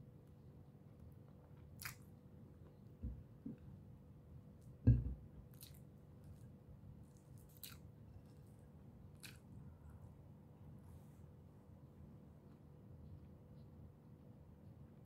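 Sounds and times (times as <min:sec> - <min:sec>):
person chewing food: 0:01.5 - 0:02.1, 0:07.1 - 0:07.9, 0:09.1 - 0:09.5
wet mouth clicks: 0:01.8 - 0:02.0
dull low thump: 0:04.9 - 0:05.2.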